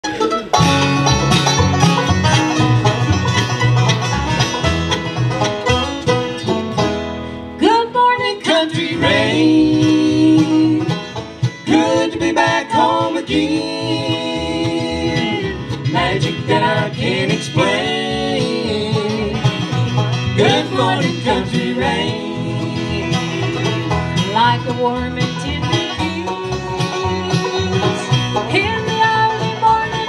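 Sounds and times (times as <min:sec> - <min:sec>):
banjo rolls: 0:00.0 - 0:30.0
bluegrass band playing: 0:00.0 - 0:30.0
person singing lead line: 0:07.6 - 0:11.0.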